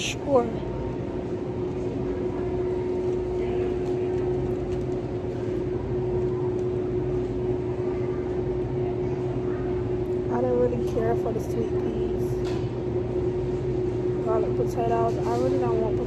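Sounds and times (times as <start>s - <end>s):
store machine hum: 0.0s - 16.0s.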